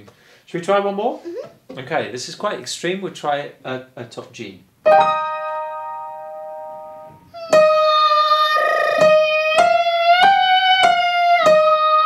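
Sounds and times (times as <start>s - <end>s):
piano notes: 4.9s - 12.0s
girl singing a scale: 7.4s - 12.0s.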